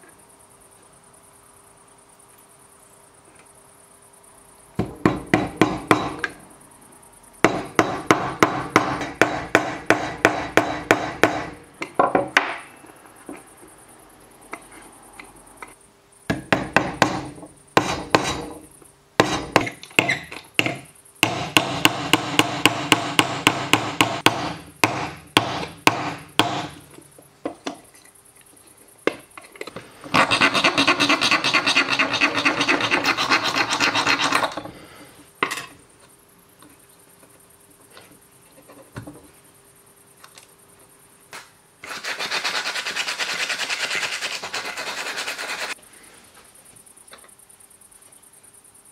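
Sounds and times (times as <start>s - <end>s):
steady filing: 30.1s - 34.6s, 41.8s - 45.8s.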